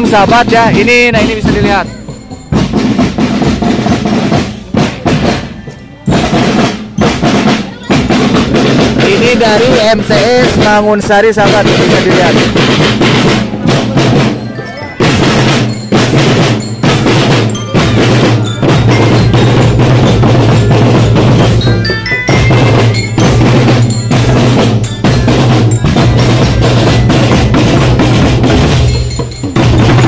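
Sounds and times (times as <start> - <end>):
marching drums beating: 0.0 - 30.0
glockenspiel high ringing notes: 1.1 - 8.6, 13.6 - 30.0.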